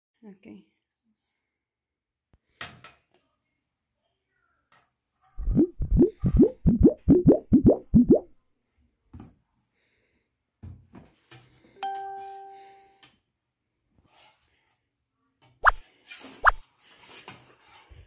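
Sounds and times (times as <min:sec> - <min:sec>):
short rising bloops: 0:05.4 - 0:08.3
bell-like chime: 0:11.8 - 0:13.0.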